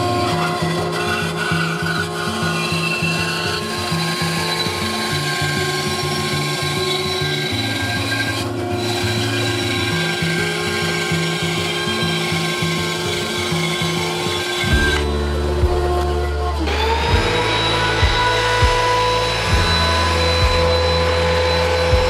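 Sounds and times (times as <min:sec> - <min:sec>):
bandsaw cutting wood: 0:00.0 - 0:22.0
background music with bass line: 0:14.7 - 0:22.0.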